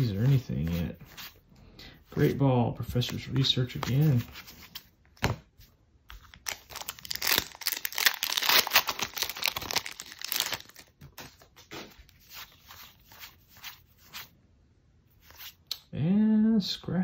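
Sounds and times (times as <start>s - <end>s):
cards rustling: 0.0s - 1.4s, 2.0s - 14.3s
foil wrapper crinkling and tearing: 6.2s - 11.4s.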